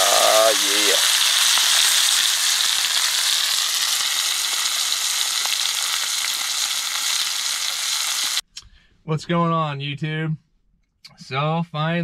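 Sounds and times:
fish sizzling in a skillet: 0:00.0 - 0:08.4.

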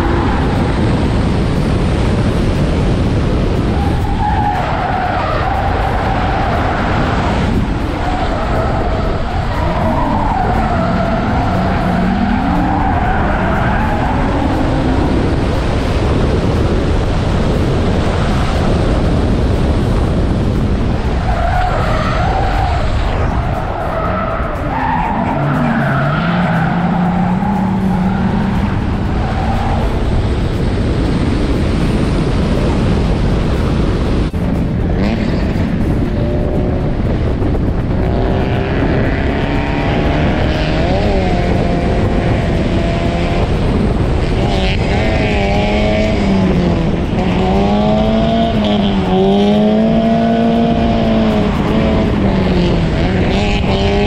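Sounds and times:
car engine at high revs: 0:00.0 - 0:54.0
sliding tyres squealing: 0:03.7 - 0:15.5, 0:21.0 - 0:30.5.

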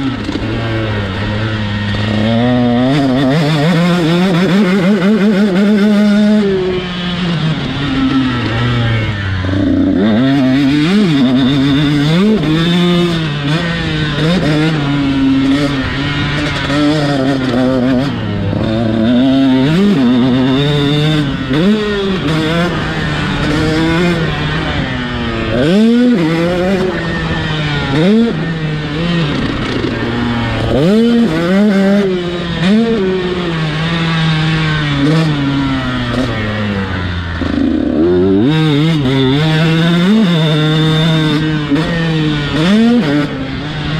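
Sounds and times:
two-stroke motorcycle engine revving: 0:00.0 - 0:43.9.

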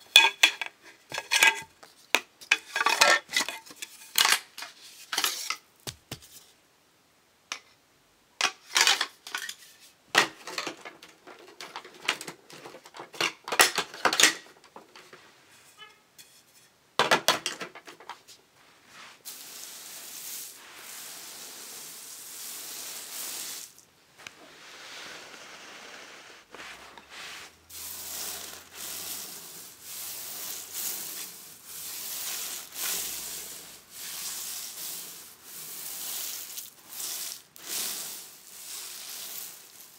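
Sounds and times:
scratchy rubbing on carpet: 0:24.3 - 0:39.9.

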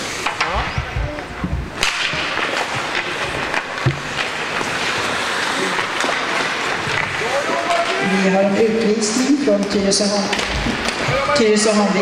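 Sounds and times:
hockey sticks clacking: 0:00.0 - 0:12.0
skates scraping ice: 0:00.0 - 0:12.0
sharp crack: 0:01.8 - 0:08.0.

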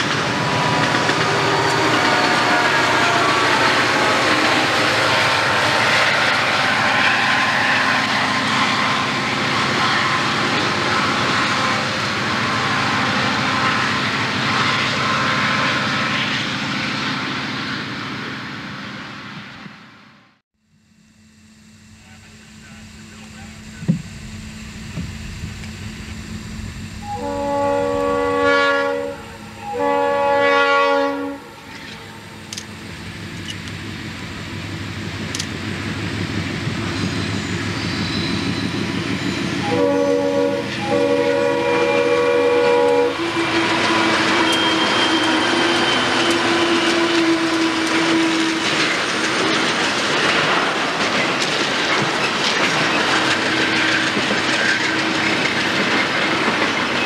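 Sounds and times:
train air horn blasts: 0:00.0 - 0:16.4, 0:26.5 - 0:32.4, 0:39.6 - 0:48.9
diesel locomotives working hard: 0:00.0 - 0:57.0
flatcars clattering over rail joints: 0:46.0 - 0:57.0.

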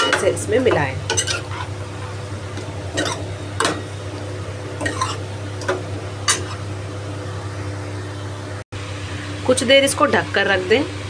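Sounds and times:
metal spoon scraping a pan: 0:01.1 - 0:02.2, 0:02.9 - 0:03.9, 0:04.8 - 0:06.6.

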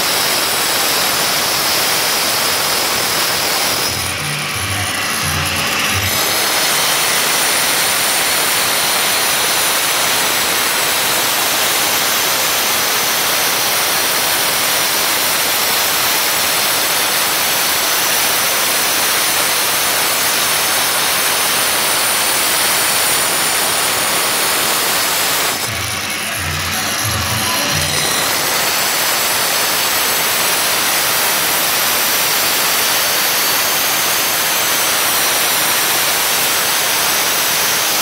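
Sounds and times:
angle grinder grinding stone: 0:00.0 - 0:38.0.

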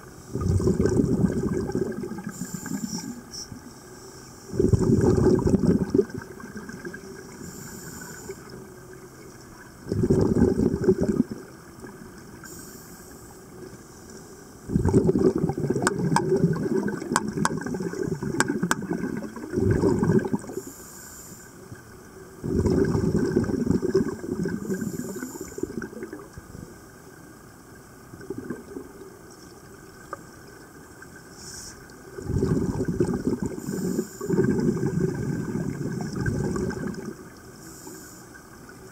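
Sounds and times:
exhaled bubbles rumbling underwater: 0:00.0 - 0:20.8, 0:21.6 - 0:38.9
regulator inhalation hiss: 0:02.2 - 0:04.6, 0:07.4 - 0:08.5, 0:12.4 - 0:13.4, 0:20.6 - 0:21.6, 0:24.6 - 0:25.8, 0:31.4 - 0:31.9, 0:33.6 - 0:34.5, 0:37.6 - 0:38.4.

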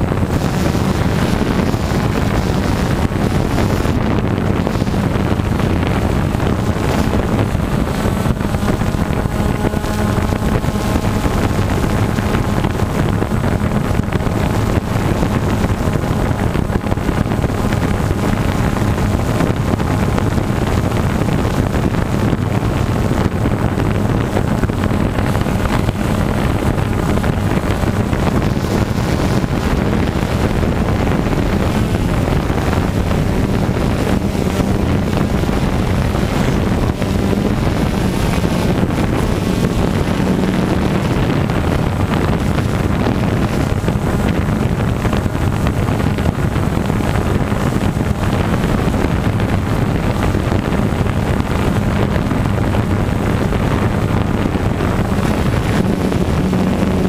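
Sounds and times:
engine running steadily: 0:00.0 - 0:57.0
wind buffeting microphone: 0:00.0 - 0:57.0.

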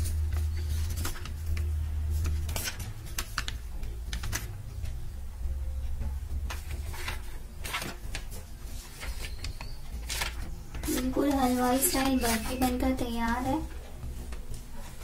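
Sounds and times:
light clicks and paper rustles: 0:00.0 - 0:05.0, 0:05.9 - 0:15.0
steady low hum: 0:00.0 - 0:09.1.

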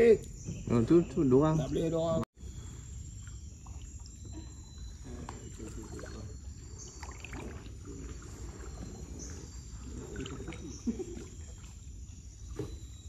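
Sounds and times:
paddle splashing in water: 0:06.9 - 0:11.8.

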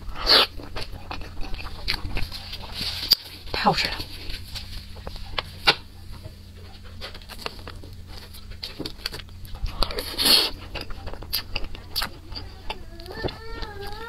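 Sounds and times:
wet chewing mouth clicks: 0:09.0 - 0:13.1.

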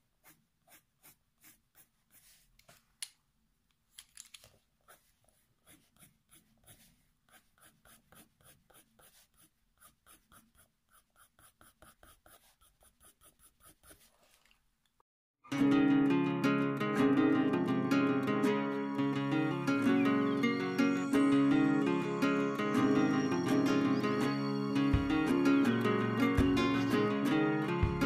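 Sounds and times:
pencil scratching on paper: 0:00.0 - 0:02.6, 0:04.8 - 0:14.4.

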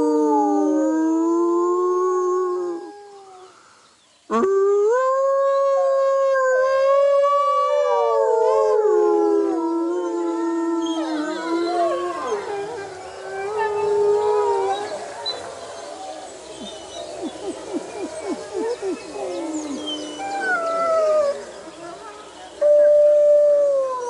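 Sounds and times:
wolves howling in chorus: 0:04.9 - 0:21.6.

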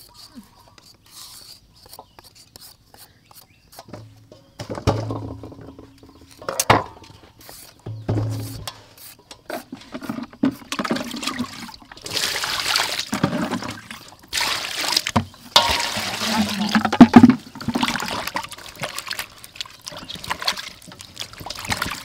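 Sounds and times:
water pouring and splashing: 0:09.8 - 0:22.0.

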